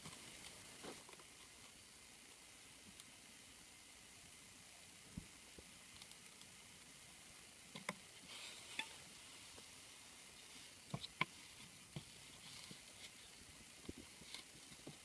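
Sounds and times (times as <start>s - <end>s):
steady high hiss: 0.0s - 15.0s
faint clicks and taps: 7.7s - 8.1s.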